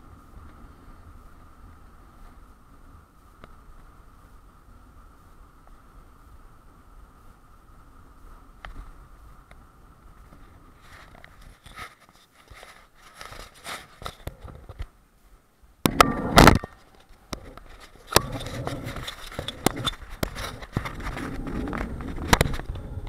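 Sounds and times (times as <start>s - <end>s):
bike clicks and rattles: 15.9s - 23.0s
tyres rolling rumble: 15.9s - 23.0s.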